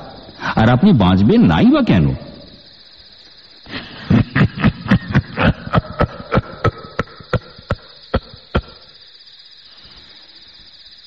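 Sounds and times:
man laughing eerily: 3.7s - 9.0s.

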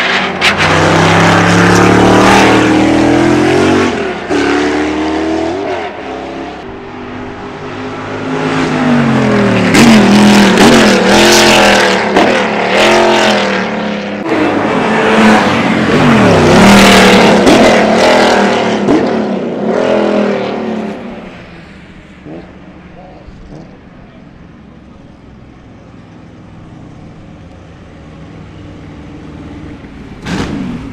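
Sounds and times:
race car engine accelerating: 0.0s - 21.3s.

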